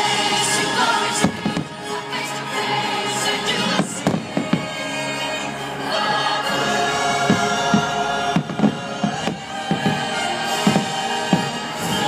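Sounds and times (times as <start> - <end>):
fireworks bursting: 0.0 - 2.2, 3.4 - 5.3, 6.8 - 12.0
choir singing: 0.0 - 12.0.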